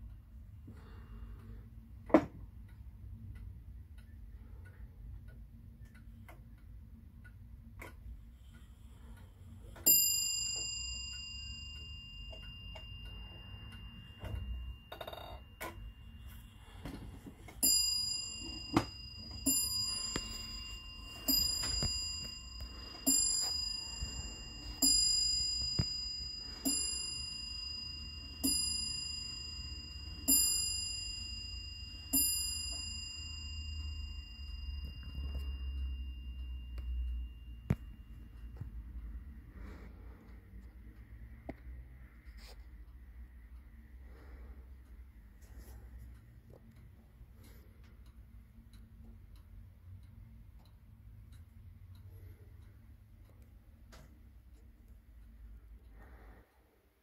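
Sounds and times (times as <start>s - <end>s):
wall clock ticking: 0.0s - 57.0s
clock bell striking: 9.7s - 39.7s.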